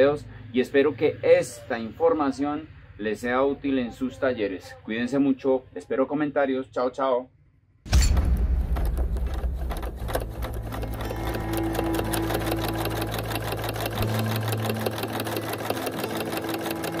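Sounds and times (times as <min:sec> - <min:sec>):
sewing machine running: 0:08.9 - 0:17.0.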